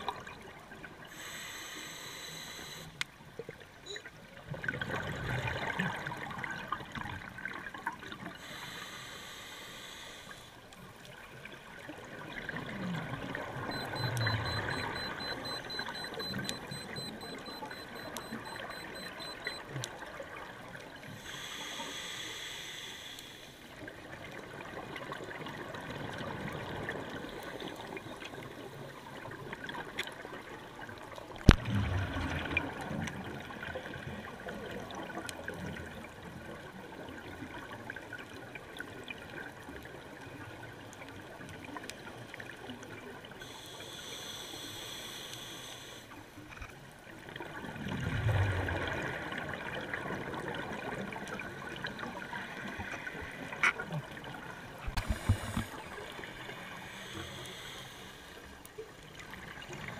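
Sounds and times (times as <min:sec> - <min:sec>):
regulator hissing inhalations: 0:01.1 - 0:03.0, 0:08.4 - 0:10.5, 0:21.2 - 0:23.6, 0:43.4 - 0:46.2, 0:56.9 - 0:58.5
bubbling exhaust underwater: 0:11.8 - 0:21.5, 0:31.4 - 0:36.1.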